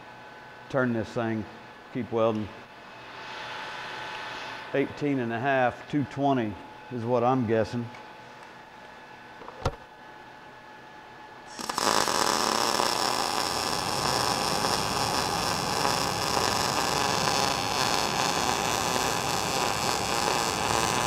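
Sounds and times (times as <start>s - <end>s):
welding arc crackling: 11.5s - 21.0s.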